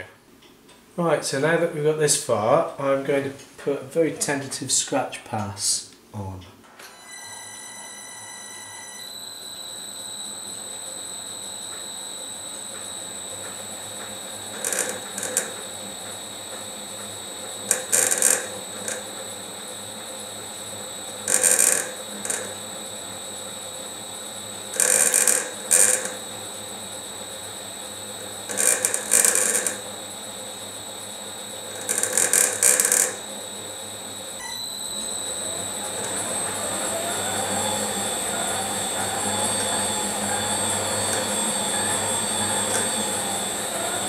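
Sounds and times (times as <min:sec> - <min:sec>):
lathe humming: 0:07.9 - 0:44.0
cutter scraping brass: 0:14.4 - 0:15.7, 0:17.6 - 0:19.2, 0:21.0 - 0:22.6, 0:24.7 - 0:26.4, 0:28.2 - 0:29.9, 0:31.6 - 0:33.3, 0:35.4 - 0:44.0.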